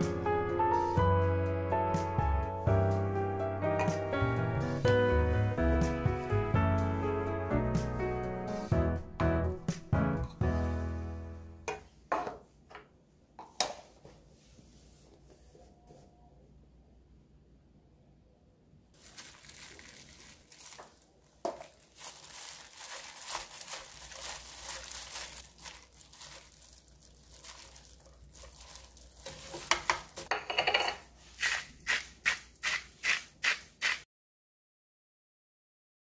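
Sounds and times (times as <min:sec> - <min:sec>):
plastic gloves rustling leaves: 0:19.0 - 0:30.3.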